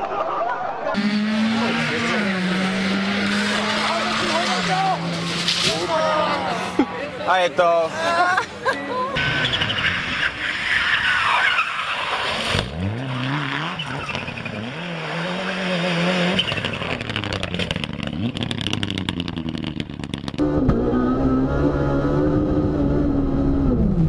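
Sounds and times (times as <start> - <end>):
rally car engines at full throttle: 0.1 - 24.0
tyres skidding: 0.1 - 24.0
engine revving through gear changes: 1.0 - 5.6, 12.6 - 24.0.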